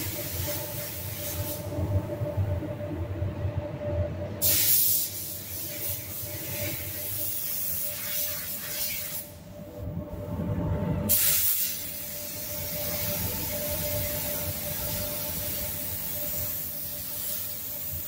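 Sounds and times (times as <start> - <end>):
low ventilation hum: 0.0 - 18.0
paint spray gun hissing: 11.1 - 13.2, 14.2 - 18.0.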